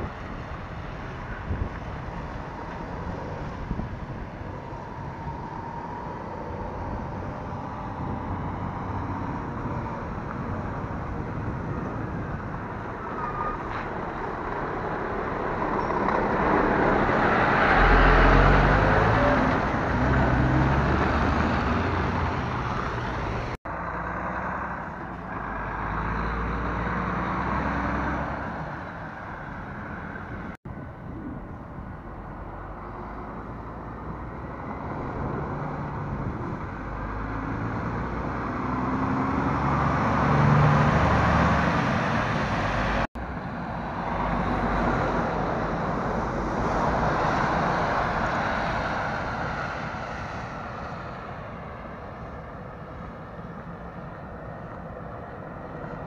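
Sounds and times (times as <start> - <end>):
diesel lorry engines: 0.0 - 56.0
tyres hissing on wet road: 43.7 - 51.3.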